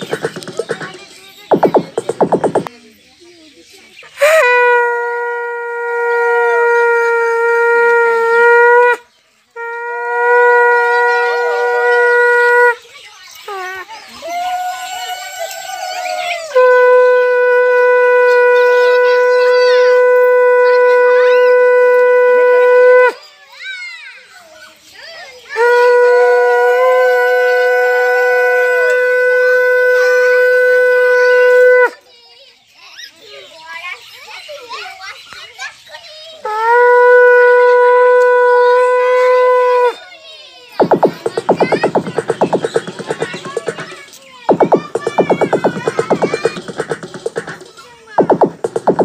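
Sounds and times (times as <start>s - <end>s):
conch shell blown: 4.2s - 9.0s, 9.6s - 12.8s, 16.6s - 23.2s.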